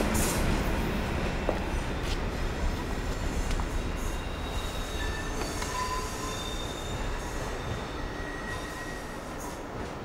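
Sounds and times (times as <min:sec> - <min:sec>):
train rumble: 0:00.0 - 0:10.0
train wheel squeals: 0:03.0 - 0:09.8.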